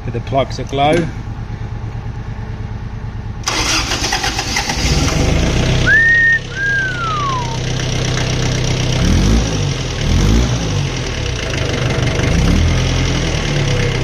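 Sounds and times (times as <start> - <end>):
diesel engine clatter: 0.0 - 14.0
two-note whistle: 5.8 - 7.7.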